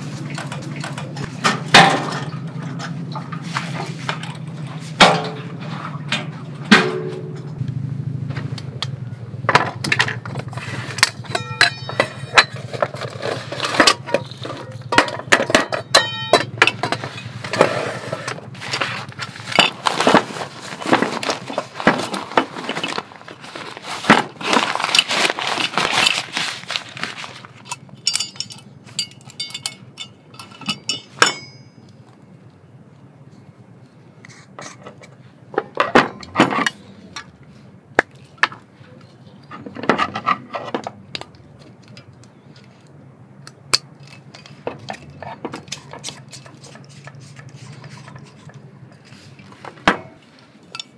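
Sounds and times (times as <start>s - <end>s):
clicks knocks and clinks: 9.6s - 17.3s, 27.6s - 32.0s.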